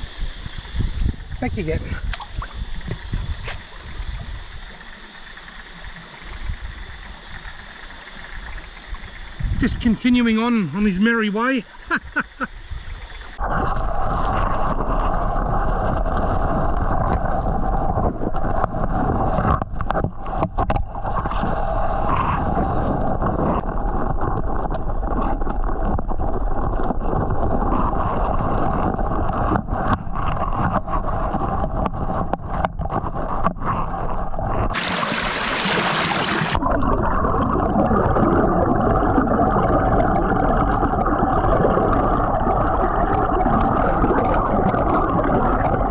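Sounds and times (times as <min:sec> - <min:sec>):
muffled underwater rumble: 0:00.0 - 0:45.9
knocks underwater: 0:18.0 - 0:21.5, 0:29.3 - 0:33.9.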